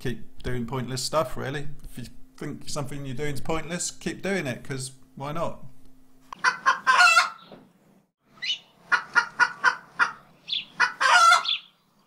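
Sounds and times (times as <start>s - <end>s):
hen squawking: 6.4s - 7.5s, 8.4s - 11.7s
hen clucking: 6.4s - 7.6s, 8.4s - 11.8s.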